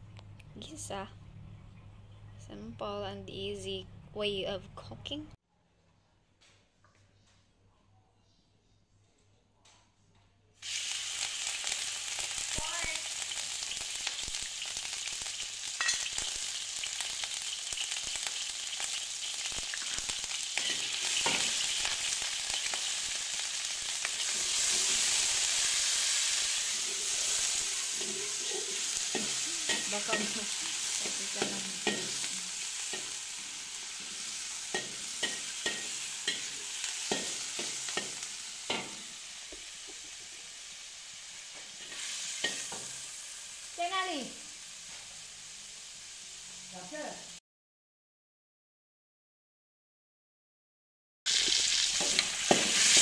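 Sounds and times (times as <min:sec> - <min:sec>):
meat sizzling in hot oil: 0:10.6 - 0:47.4, 0:51.3 - 0:53.0
metal spatula scraping wok: 0:20.6 - 0:22.7, 0:24.0 - 0:39.1, 0:41.6 - 0:42.9, 0:51.3 - 0:53.0.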